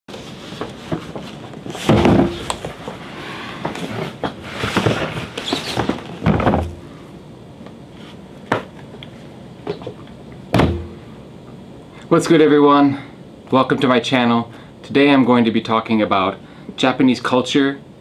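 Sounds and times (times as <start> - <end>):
cardboard scraping and shuffling: 0.1 - 6.8
cardboard box thud: 1.8 - 2.6, 10.6 - 11.0
sharp knock: 10.5 - 11.0.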